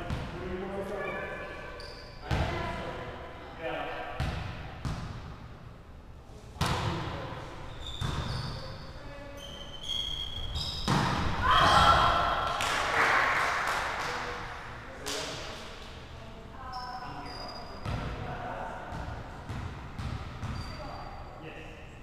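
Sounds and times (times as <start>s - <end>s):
sneakers squeaking on hardwood: 7.6s - 12.0s, 20.0s - 21.2s
volleyball echoing smacks: 10.8s - 13.0s
players shouting: 11.3s - 13.3s.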